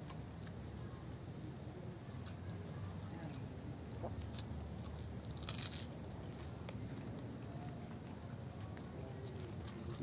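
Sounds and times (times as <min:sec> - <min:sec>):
low background noise: 0:00.0 - 0:10.0
faint chewing: 0:02.2 - 0:10.0
crunchy bite into spring roll: 0:05.3 - 0:05.9.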